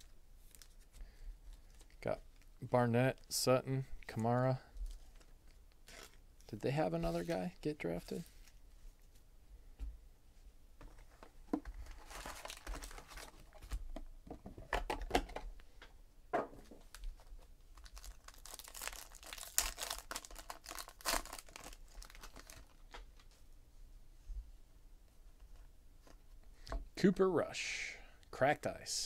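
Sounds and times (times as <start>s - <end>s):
foil wrapper tearing and crinkling: 17.7s - 22.9s.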